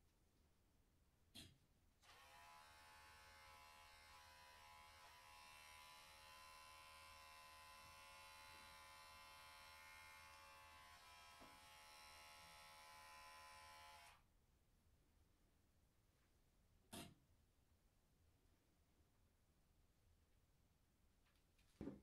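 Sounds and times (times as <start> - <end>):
electric hair clipper buzzing: 2.0 - 14.2.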